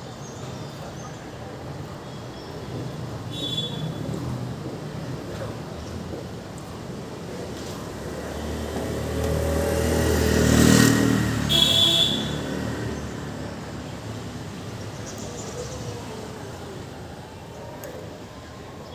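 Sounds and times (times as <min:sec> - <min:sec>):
vehicle passing: 0:07.4 - 0:14.8.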